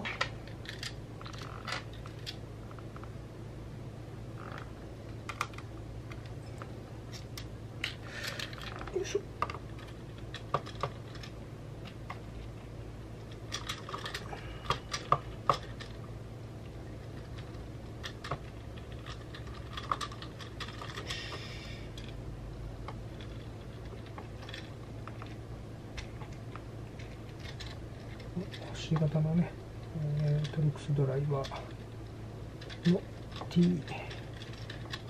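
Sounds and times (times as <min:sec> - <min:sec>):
small metal parts handled: 0:00.0 - 0:02.4, 0:13.2 - 0:16.1, 0:16.9 - 0:22.2, 0:23.0 - 0:29.2, 0:32.5 - 0:35.0
steady low hum: 0:00.0 - 0:35.0.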